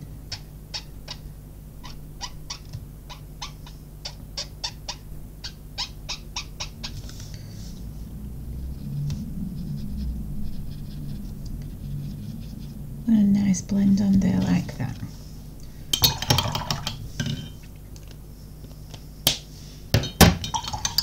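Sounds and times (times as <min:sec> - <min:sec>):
low hum: 0:06.0 - 0:18.9.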